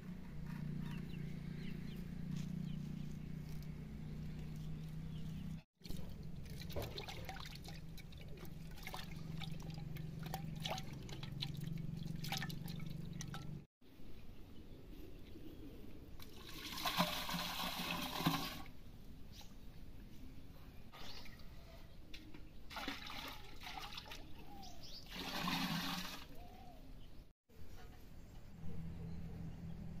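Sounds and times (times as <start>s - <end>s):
liquid pouring and splashing: 5.8s - 13.6s, 16.2s - 18.7s, 22.7s - 24.3s, 25.1s - 26.4s
liquid trickling and dripping: 5.8s - 13.6s.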